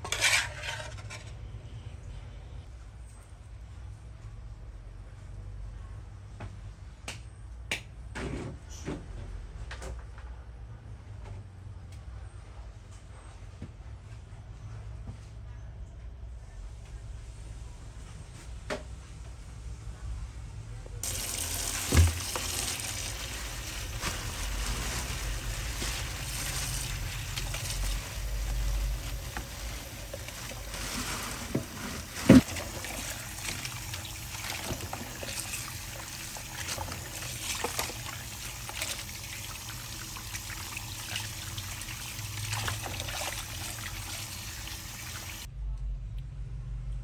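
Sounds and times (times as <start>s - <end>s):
tap water running into basin: 21.0s - 45.5s
water splashing and sloshing: 21.0s - 45.5s.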